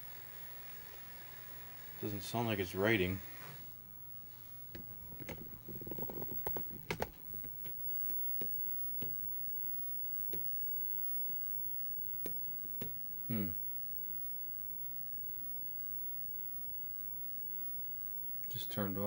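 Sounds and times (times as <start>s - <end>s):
floppy disk drive clicking: 4.7s - 9.2s.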